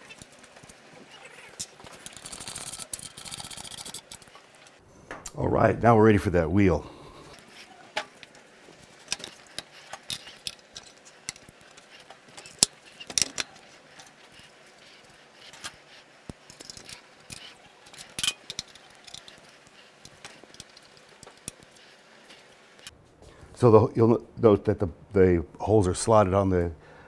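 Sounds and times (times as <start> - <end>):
metal tool clicks and clinks: 16.3 - 21.8.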